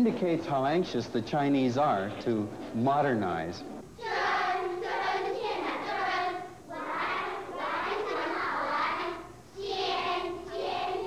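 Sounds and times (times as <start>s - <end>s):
children's voices in unison: 4.0s - 11.0s.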